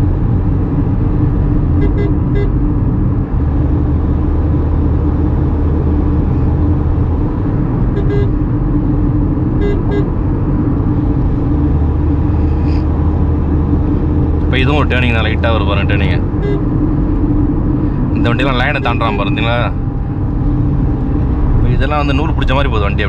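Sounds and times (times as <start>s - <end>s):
road and engine noise in car cabin: 0.0s - 23.0s
car horn toots: 1.8s - 2.6s, 7.9s - 8.4s, 9.6s - 10.2s, 16.3s - 16.7s.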